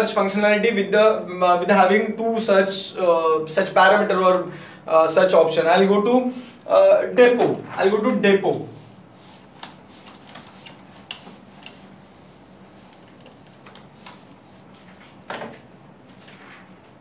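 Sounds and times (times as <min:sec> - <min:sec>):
whiteboard being wiped: 0:07.3 - 0:15.3.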